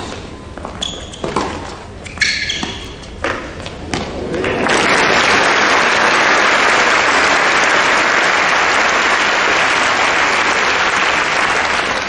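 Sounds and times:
crowd applauding: 4.3s - 12.0s.

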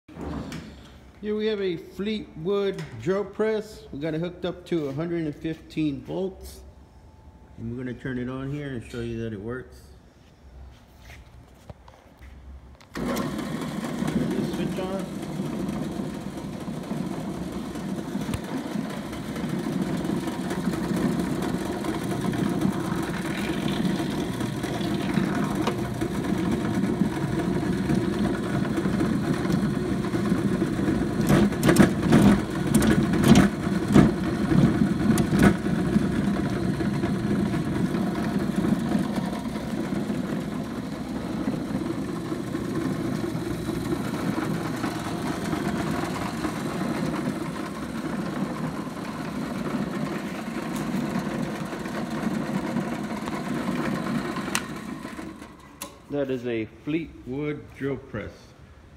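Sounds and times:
drill press motor running: 12.9s - 56.1s
sharp clicks and knocks: 31.2s - 36.0s.

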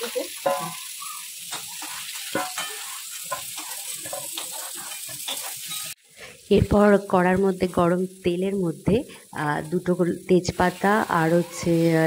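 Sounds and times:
potatoes frying in hot oil: 0.0s - 12.0s
spatula scraping a pan: 0.4s - 6.0s, 10.8s - 12.0s.

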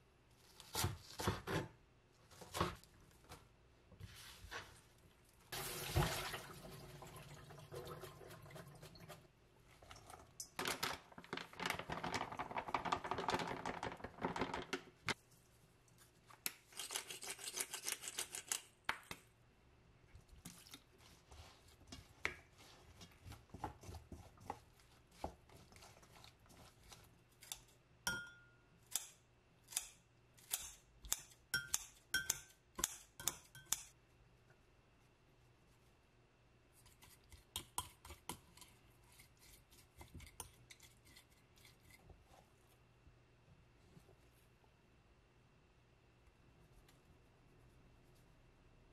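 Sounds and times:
rustling and handling food: 0.0s - 7.0s, 7.9s - 28.0s, 34.0s - 48.9s
kitchen scissors snipping: 16.4s - 19.2s, 27.4s - 33.9s.

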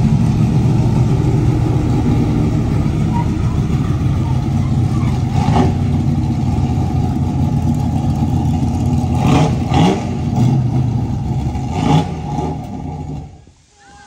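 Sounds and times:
vehicle engine running and revving: 0.0s - 13.4s.

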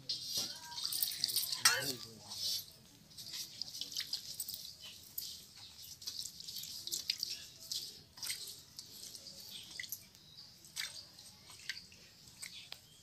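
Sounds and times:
water splashing in metal pan: 0.6s - 2.0s.

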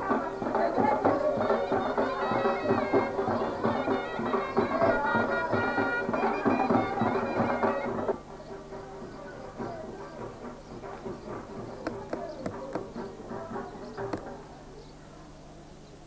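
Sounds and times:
drum beats: 0.0s - 14.7s
wind instruments playing melody: 1.4s - 8.3s.

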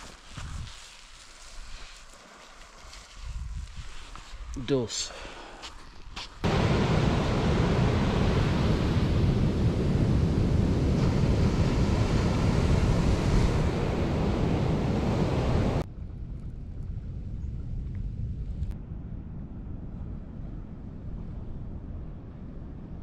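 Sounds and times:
wind buffeting microphone: 0.0s - 0.8s, 2.8s - 4.6s, 6.0s - 23.0s
steady outdoor hiss: 0.0s - 15.8s
sea surf breaking on beach: 6.4s - 15.8s.

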